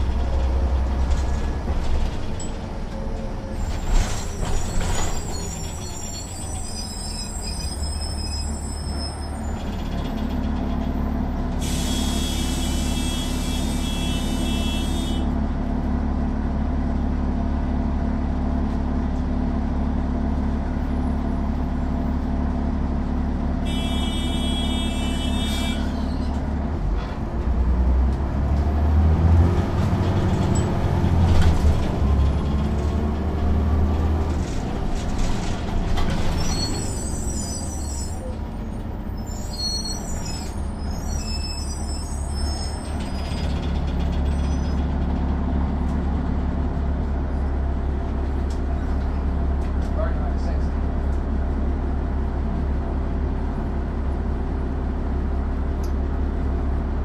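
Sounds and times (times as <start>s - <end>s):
bus diesel engine idling and revving: 0.0s - 57.0s
air brake hiss: 11.6s - 13.8s.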